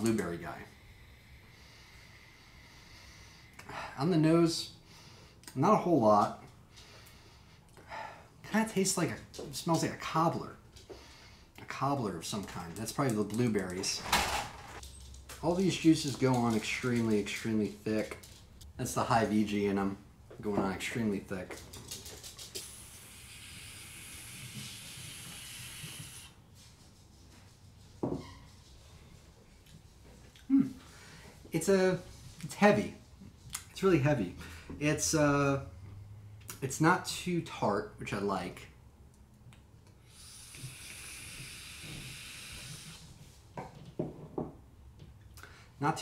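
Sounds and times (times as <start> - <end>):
e-cigarette hiss: 22.6 - 26.4, 40.1 - 43.1
person exhaling: 22.6 - 26.4, 40.0 - 43.0.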